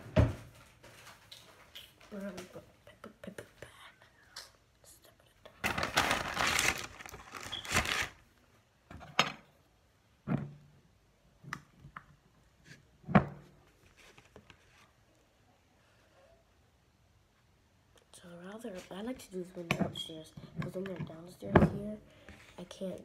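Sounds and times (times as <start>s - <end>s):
bag crinkling: 5.6s - 8.3s.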